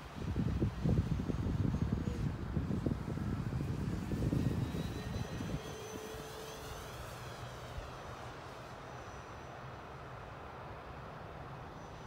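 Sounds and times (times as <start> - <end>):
wind buffeting microphone: 0.0 - 8.0
rc plane electric motor whine: 0.1 - 10.4.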